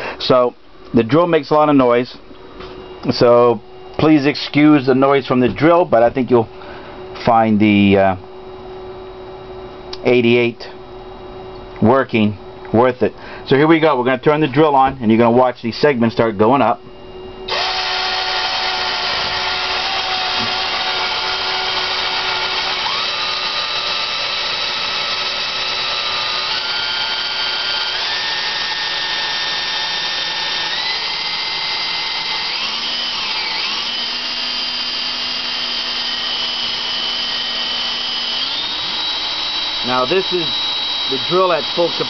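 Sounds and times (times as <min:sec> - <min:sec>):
electric drill motor whine: 0:17.5 - 0:42.0.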